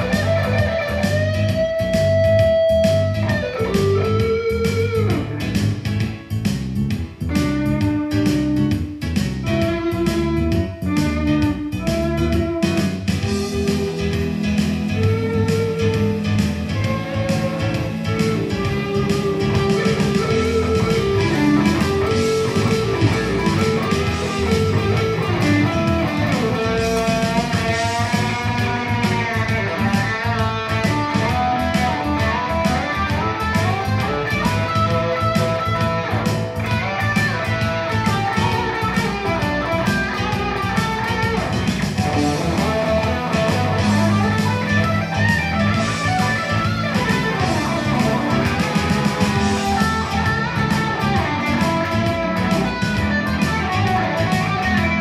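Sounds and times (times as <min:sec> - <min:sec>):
electric guitar lead: 0:00.0 - 0:55.0.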